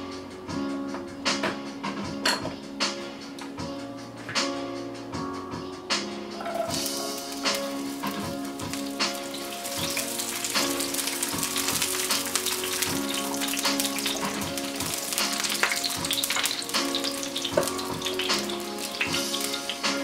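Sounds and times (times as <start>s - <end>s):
onion sizzling in a frying pan: 6.4s - 20.0s.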